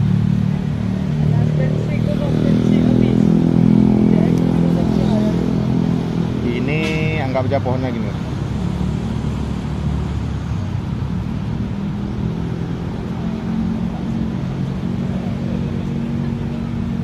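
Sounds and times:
low engine hum: 0:00.0 - 0:17.0
outdoor background noise: 0:00.0 - 0:17.0.

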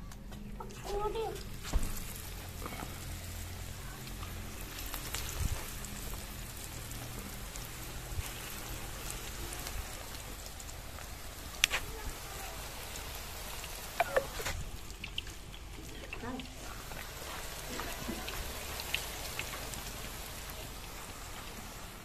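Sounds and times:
food sizzling in hot oil: 0:01.0 - 0:22.0.

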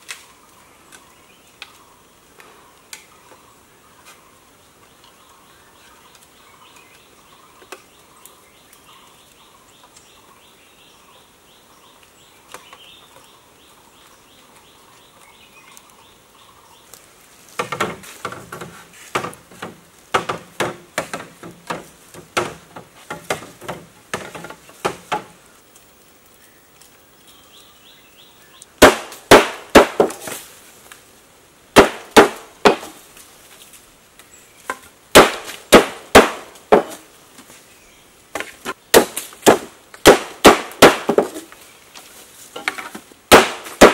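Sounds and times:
faint forest background: 0:00.0 - 0:43.9
hollow knocks of bamboo poles: 0:17.5 - 0:25.4, 0:28.8 - 0:30.4, 0:31.8 - 0:33.0, 0:34.6 - 0:37.5, 0:38.3 - 0:41.5, 0:42.5 - 0:43.9
blade chopping bamboo: 0:17.6 - 0:25.3, 0:28.8 - 0:30.5, 0:31.8 - 0:33.0, 0:35.1 - 0:37.0, 0:38.4 - 0:41.5, 0:42.6 - 0:43.9.

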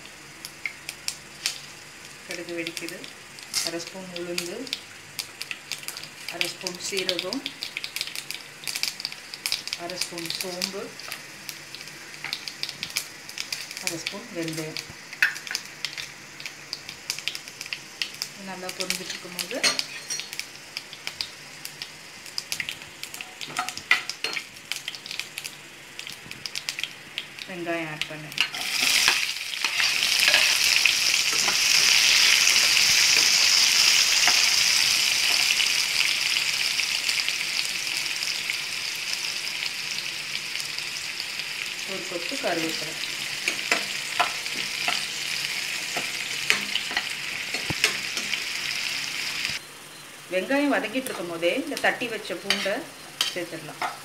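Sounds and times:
spices crackling in hot oil: 0:00.0 - 0:54.0
spatula scraping and stirring: 0:28.4 - 0:33.6.

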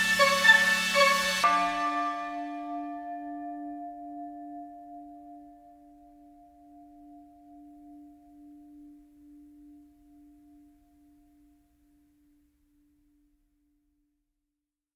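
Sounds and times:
bell low note ringing: 0:00.0 - 0:11.2.

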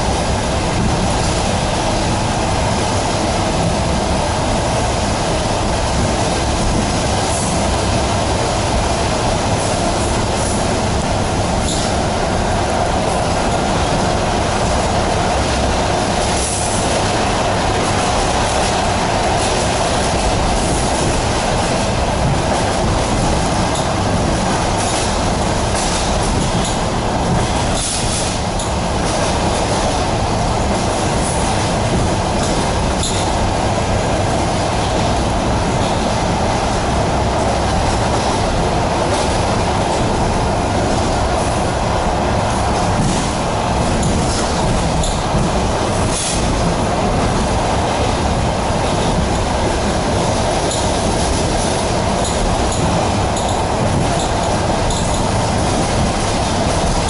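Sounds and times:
train wheels on rails: 0:00.0 - 0:57.0.

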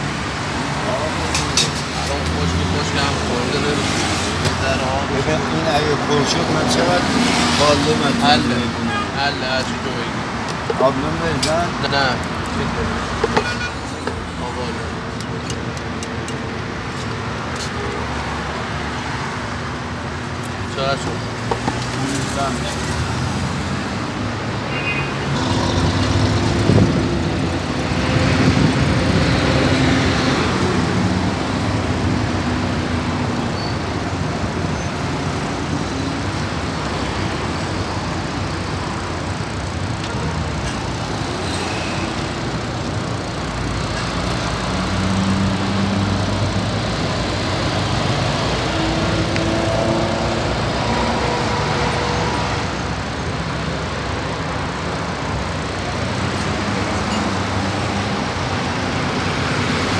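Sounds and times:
city road traffic: 0:00.0 - 0:59.9
vehicle engines passing: 0:00.0 - 0:59.9.

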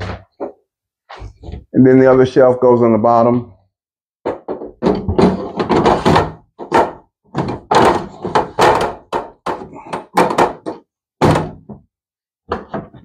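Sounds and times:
panel knocking against table frame: 0:04.3 - 0:11.8.

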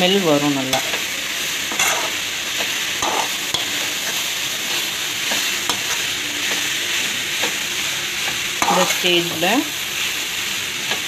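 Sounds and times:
vegetables sizzling in a pan: 0:00.0 - 0:11.0
metal spatula scraping a pan: 0:01.7 - 0:06.7, 0:08.6 - 0:09.5.

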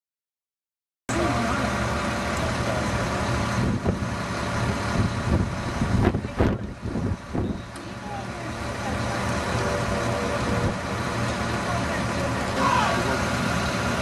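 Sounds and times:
vehicle engine idling: 0:01.1 - 0:14.0
faint voices: 0:06.1 - 0:13.7.

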